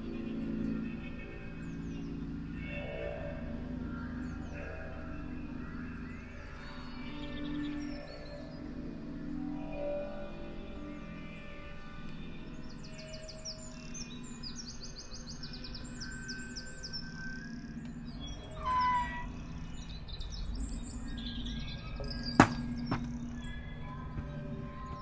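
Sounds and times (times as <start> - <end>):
birdsong chirping: 0.0 - 25.0.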